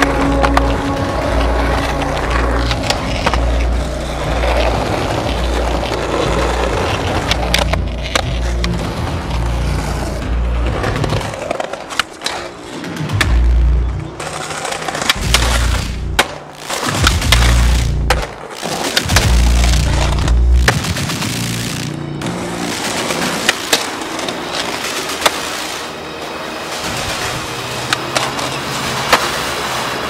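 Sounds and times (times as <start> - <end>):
skateboard tail clicks: 0.0 - 9.1, 10.8 - 20.8, 22.8 - 25.9
skateboard wheels on concrete: 0.0 - 30.0
music with pulsing bass: 15.2 - 23.1.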